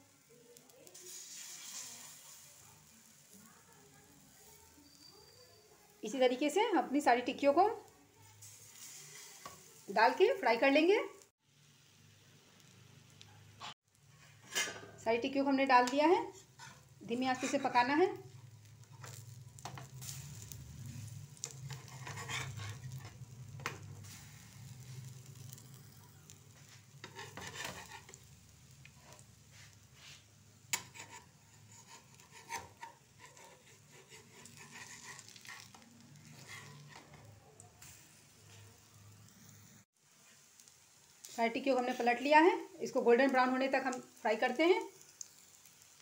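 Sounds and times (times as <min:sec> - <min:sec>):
faint sizzle of frying: 0:00.0 - 0:46.0
spatula scraping and tapping pan: 0:08.7 - 0:09.8, 0:13.6 - 0:15.0, 0:15.8 - 0:37.3.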